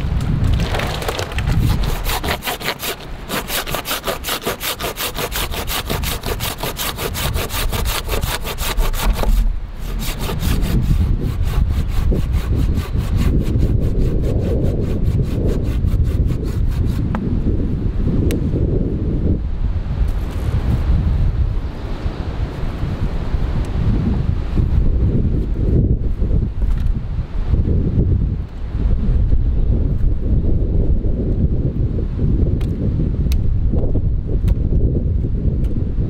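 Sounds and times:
hand saw cutting wood: 1.5s - 17.2s.

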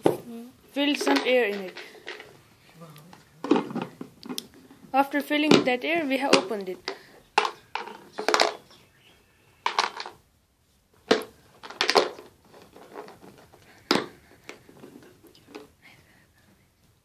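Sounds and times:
plastic container clattering: 0.8s - 2.4s, 3.1s - 8.7s, 9.6s - 10.2s, 11.0s - 15.7s.

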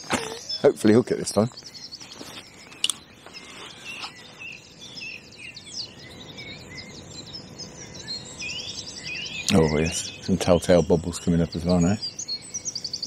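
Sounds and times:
songbirds singing: 0.0s - 13.0s
low steady background hiss: 2.7s - 13.0s.

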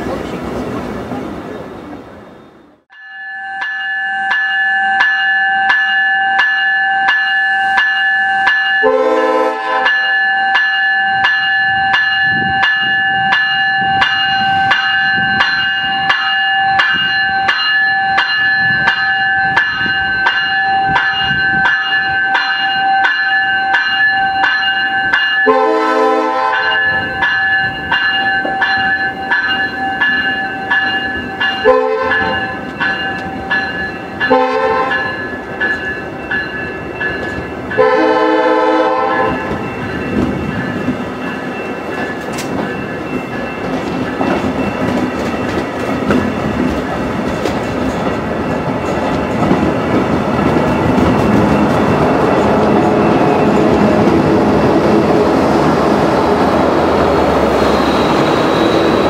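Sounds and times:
train passing with wheel clatter: 0.0s - 59.0s
level crossing bell ringing: 2.9s - 45.8s
train air horn blasts: 8.8s - 10.0s, 25.5s - 26.8s, 31.6s - 32.4s, 34.3s - 35.1s, 37.8s - 39.6s.

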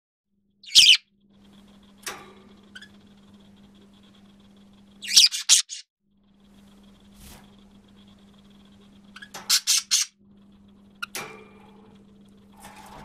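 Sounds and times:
budgerigar squeaky calls: 0.6s - 1.0s, 5.0s - 5.8s, 9.2s - 10.1s.

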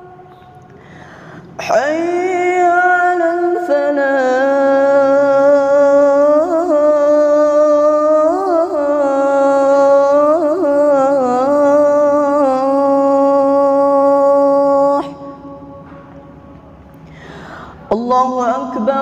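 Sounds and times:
man chanting call to prayer: 1.6s - 15.6s, 17.8s - 19.0s.

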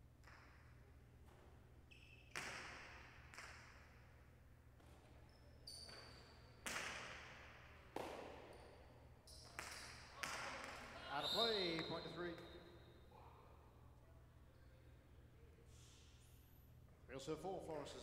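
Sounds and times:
ball cracking off walls with echo: 2.3s - 4.0s, 6.6s - 8.6s, 9.5s - 11.0s.

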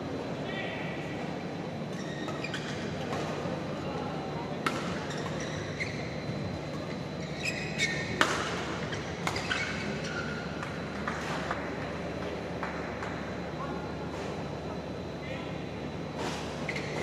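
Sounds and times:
large hall background noise: 0.0s - 17.0s
shoes squeaking on court: 1.9s - 3.4s, 4.7s - 11.4s, 16.2s - 17.0s
rackets hitting shuttlecock: 4.6s - 5.4s, 8.1s - 9.8s.

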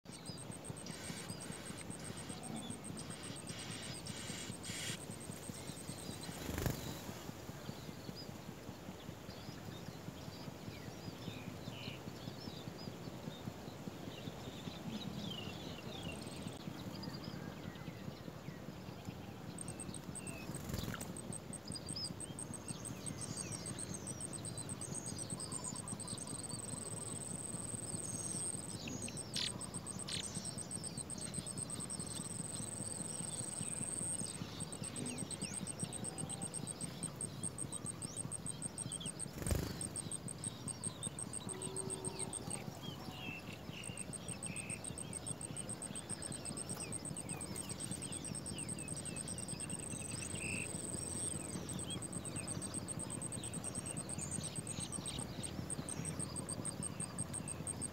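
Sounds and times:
fast-pulsing high trill: 19.6s - 57.9s
high bird chirps and peeps: 38.4s - 40.0s.

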